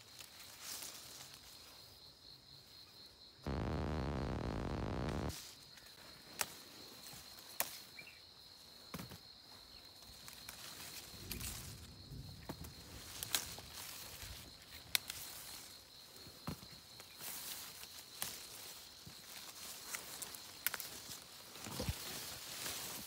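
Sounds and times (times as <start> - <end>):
sharp clicks: 3.5 - 5.3
leaves rustling: 17.4 - 23.0.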